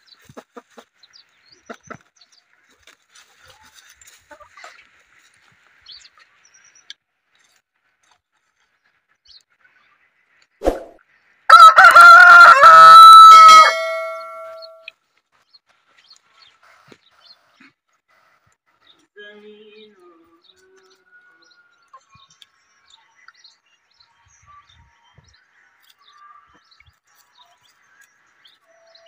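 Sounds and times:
rooster crowing: 11.5s - 14.8s.

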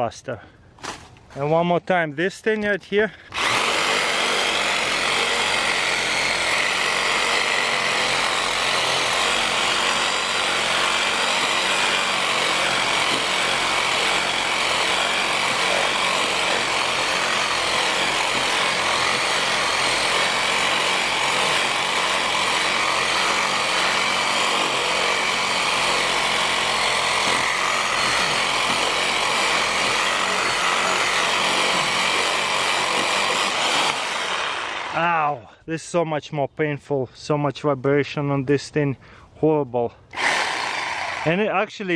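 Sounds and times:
reciprocating saw cutting branch: 3.3s - 35.1s, 40.1s - 41.5s.

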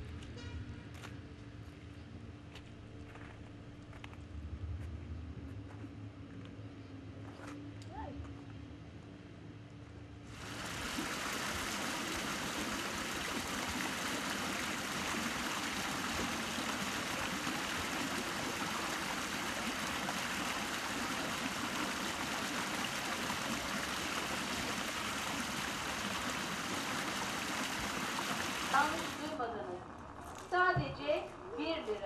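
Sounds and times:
water pouring into stream: 10.3s - 29.4s.

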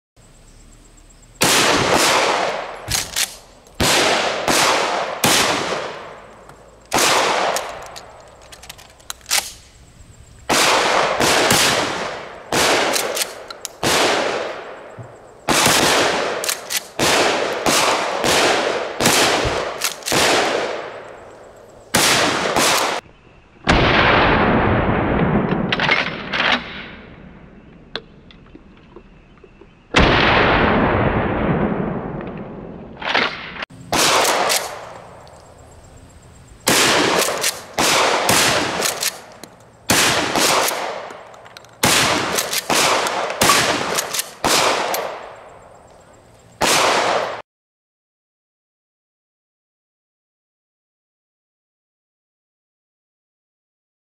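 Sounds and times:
shotgun shots with echo: 1.4s - 6.2s, 6.9s - 8.0s, 10.5s - 14.8s, 15.5s - 21.0s, 21.9s - 23.0s, 29.9s - 34.9s, 36.7s - 39.3s, 39.9s - 45.4s, 46.6s - 47.4s
shotgun pump clicks: 2.9s - 3.8s, 6.4s - 9.7s, 12.9s - 13.8s, 16.4s - 17.0s, 19.8s - 20.2s, 37.1s - 37.8s, 38.8s - 39.8s, 40.6s - 45.1s.

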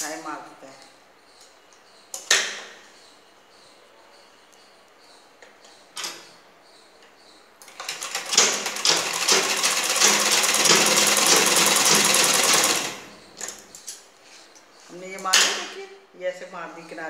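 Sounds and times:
sewing machine stitching: 7.7s - 13.1s.

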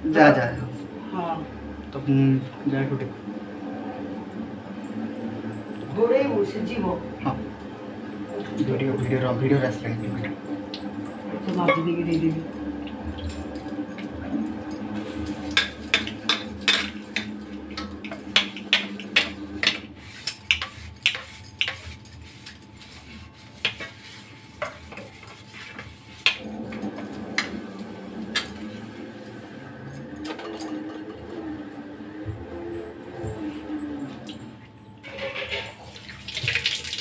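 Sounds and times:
metal kitchenware clinking: 15.0s - 22.7s, 35.0s - 35.9s.

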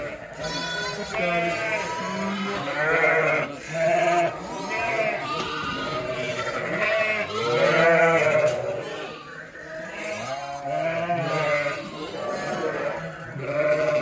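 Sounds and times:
lambs and ewes bleating: 0.0s - 14.0s.

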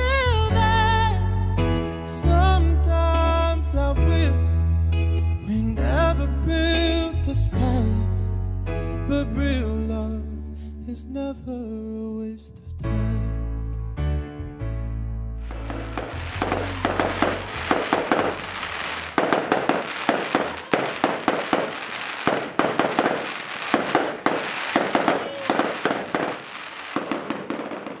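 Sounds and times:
fireworks popping and crackling: 15.4s - 28.0s.

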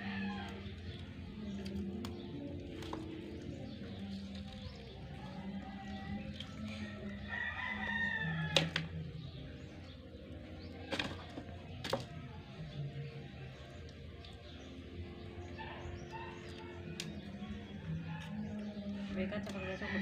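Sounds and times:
wet handling of fish: 0.5s - 15.3s.

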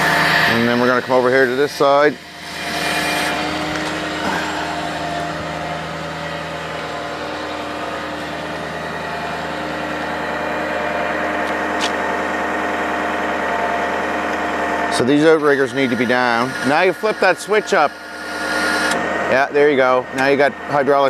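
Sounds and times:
diesel engine idling: 0.0s - 21.0s.

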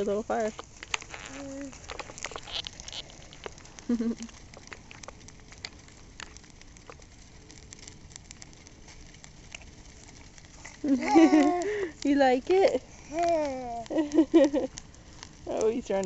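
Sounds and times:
bonfire crackling and popping: 0.0s - 16.0s
faint fire hiss: 0.0s - 16.0s.

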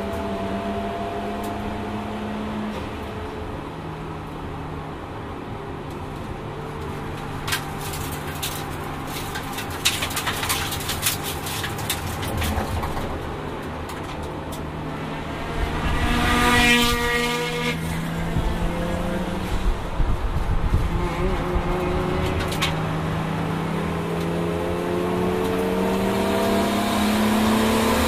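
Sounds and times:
race car engine from inside cabin: 0.0s - 28.0s
sharp clicks and rattles: 7.1s - 14.7s.

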